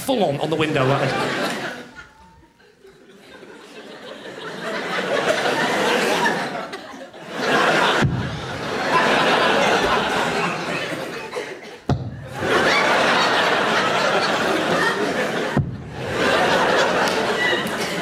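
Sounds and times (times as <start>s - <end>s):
audience laughing: 0.4s - 18.0s.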